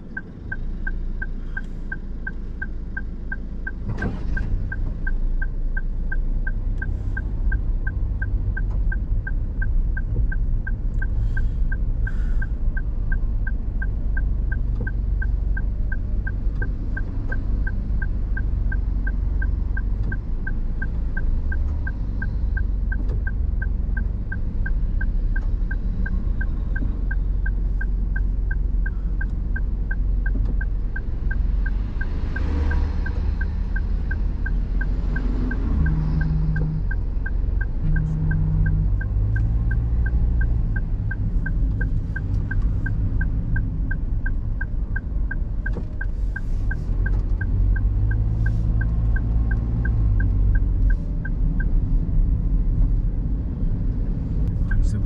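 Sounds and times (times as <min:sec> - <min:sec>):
car engine rumble: 0:00.0 - 0:55.0
road noise: 0:00.0 - 0:55.0
turn signal ticking: 0:00.0 - 0:55.0.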